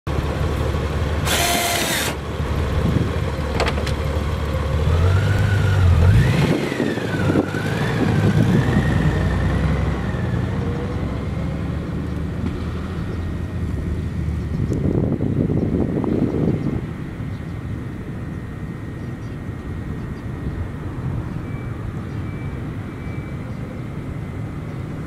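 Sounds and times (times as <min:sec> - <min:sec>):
motorcycle engine accelerating: 0:00.1 - 0:16.8.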